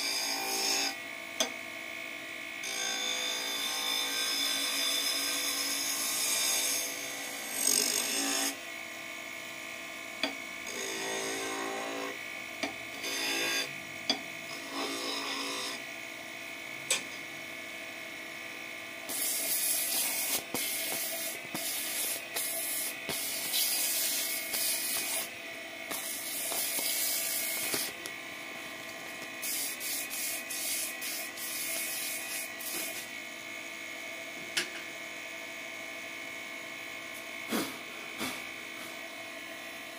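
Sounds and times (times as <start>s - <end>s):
lathe motor whining: 17.5s - 34.0s
chisel scraping spinning wood: 19.1s - 25.3s, 25.9s - 28.0s
sanding hiss: 19.1s - 25.3s, 29.4s - 33.0s.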